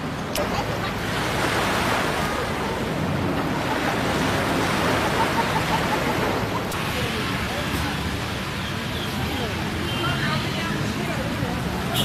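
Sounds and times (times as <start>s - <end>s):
wind: 0.0s - 12.0s
surf washing onto sand: 0.1s - 8.5s.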